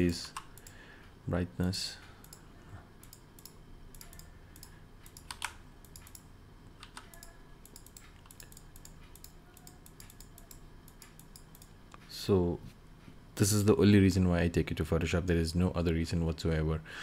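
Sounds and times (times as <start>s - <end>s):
keyboard and mouse clicking: 3.0s - 11.7s.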